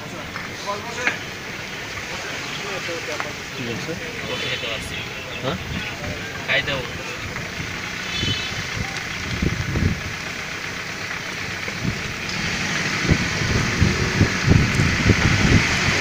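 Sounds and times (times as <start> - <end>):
moving vehicle noise: 0.0 - 16.0
wind buffeting microphone: 7.1 - 10.2, 11.7 - 16.0.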